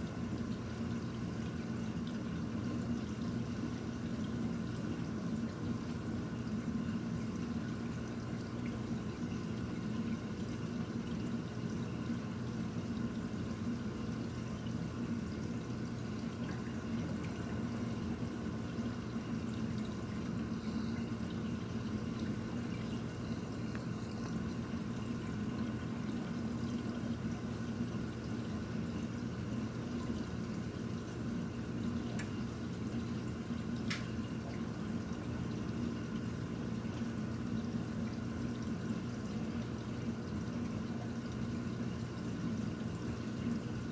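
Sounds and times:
low pump hum: 0:00.0 - 0:43.9
water trickling: 0:00.0 - 0:43.9
faint ticks: 0:23.7 - 0:24.4.

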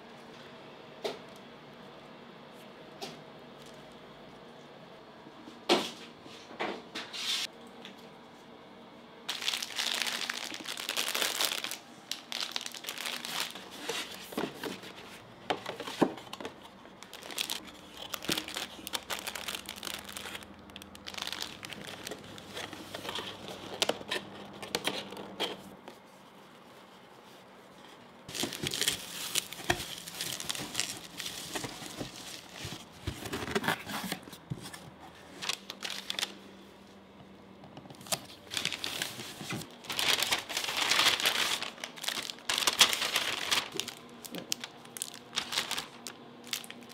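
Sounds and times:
packaging crinkling and rustling: 0:09.3 - 0:25.6, 0:28.3 - 0:36.4, 0:37.9 - 0:46.9.

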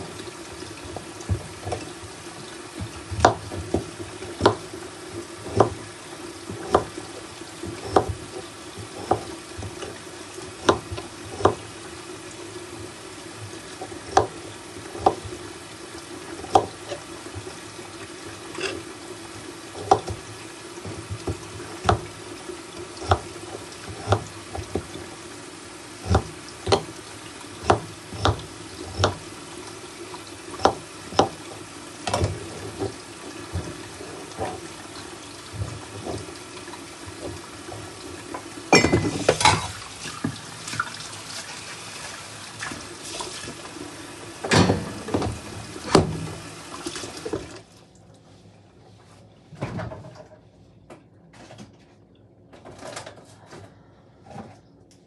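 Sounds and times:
steady background hum: 0:00.0 - 0:55.0
knife chopping on board: 0:03.2 - 0:04.7, 0:06.6 - 0:07.0, 0:27.6 - 0:29.2, 0:30.6 - 0:31.4.

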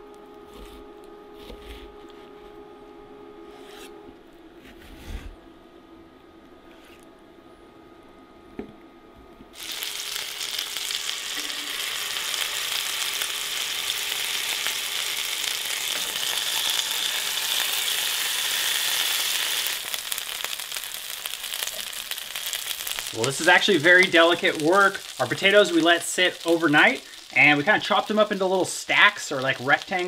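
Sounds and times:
potatoes sizzling in a pan: 0:09.6 - 0:30.0.

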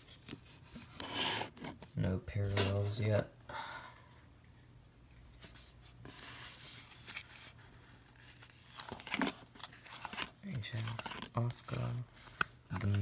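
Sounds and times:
trading cards rustling: 0:05.2 - 0:13.0.

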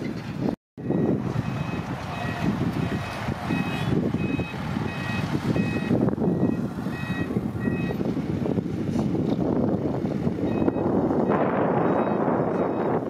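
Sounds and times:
truck engine running: 0:00.2 - 0:13.0
reversing alarm two-tone beep: 0:00.8 - 0:08.0, 0:10.4 - 0:13.0.

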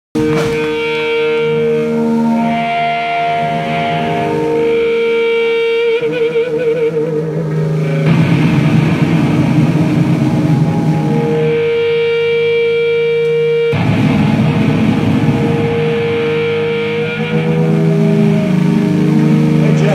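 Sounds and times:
distorted electric guitar: 0:00.2 - 0:19.9
rock band playing: 0:00.2 - 0:19.9.

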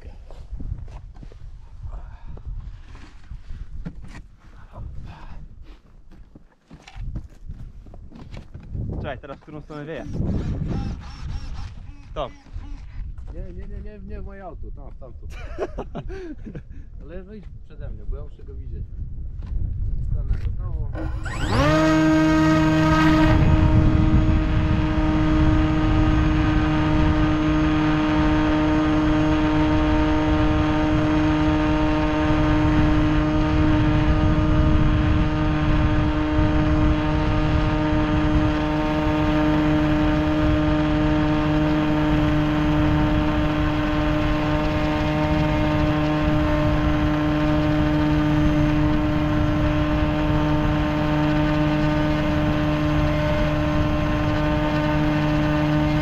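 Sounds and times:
wind rushing over microphone: 0:00.0 - 0:05.7, 0:07.0 - 0:56.0
electric motor and propeller whine: 0:09.8 - 0:13.2, 0:20.9 - 0:56.0.

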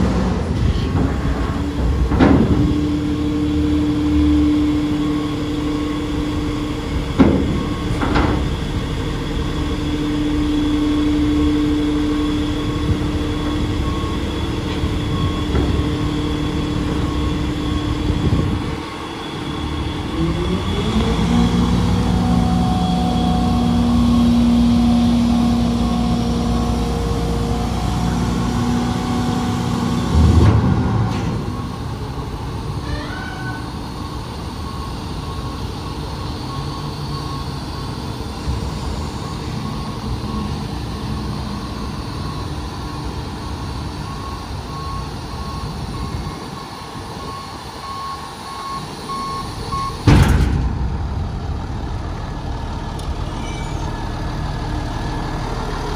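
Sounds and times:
diesel engine running: 0:00.0 - 0:55.9
heavy tailgate clunk: 0:01.9 - 0:02.7, 0:49.9 - 0:51.6
beeping alarm: 0:03.8 - 0:08.8, 0:10.1 - 0:21.0, 0:31.1 - 0:50.2.

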